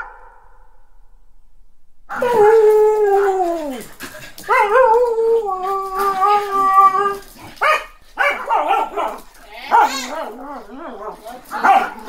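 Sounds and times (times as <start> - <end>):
dog howling: 2.1 - 7.5, 8.4 - 12.0
dog barking: 7.6 - 10.3, 11.0 - 12.0.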